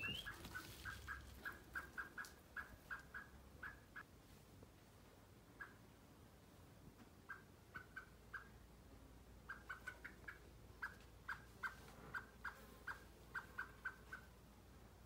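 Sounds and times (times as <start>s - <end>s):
blackbird short clipped calls: 0.0s - 3.8s.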